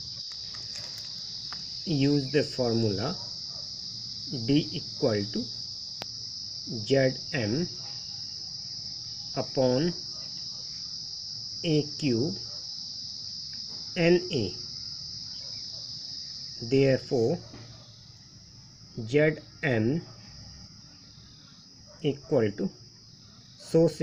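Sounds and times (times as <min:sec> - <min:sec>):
crickets chirping: 0:00.0 - 0:24.0
man speaking: 0:01.9 - 0:03.2, 0:04.3 - 0:05.5, 0:06.7 - 0:07.7, 0:09.4 - 0:10.0, 0:11.6 - 0:12.4, 0:14.0 - 0:14.6, 0:16.6 - 0:17.4.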